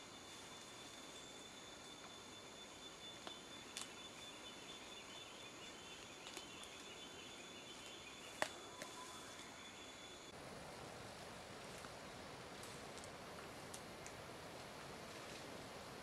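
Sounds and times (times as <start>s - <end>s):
high-pitched whine: 0.0s - 6.0s.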